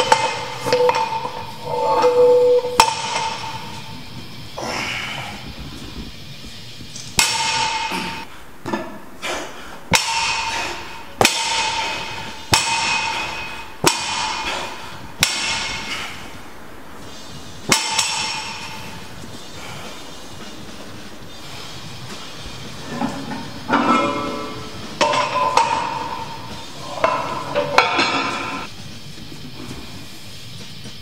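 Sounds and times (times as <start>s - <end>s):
barbell plates clanging: 0.0s - 4.0s, 7.1s - 9.0s, 9.9s - 15.9s, 17.6s - 19.1s, 22.4s - 28.7s.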